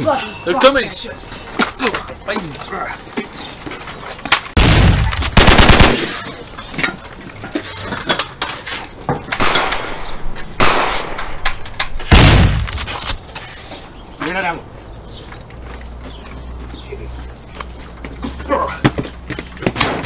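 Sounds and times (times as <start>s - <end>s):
heavy blast: 4.6s - 6.1s, 12.1s - 13.0s
gunshots: 4.6s - 6.3s, 9.4s - 13.2s.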